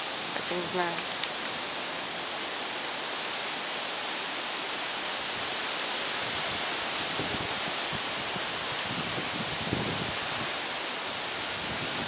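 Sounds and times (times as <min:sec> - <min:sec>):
wind rushing through trees: 0:00.0 - 0:12.0
wind buffeting microphone: 0:06.2 - 0:12.0.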